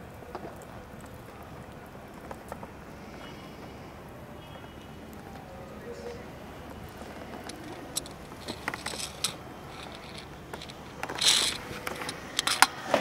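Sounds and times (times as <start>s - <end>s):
rustling hiss: 0.0s - 13.0s
small clicks and knocks: 6.8s - 13.0s.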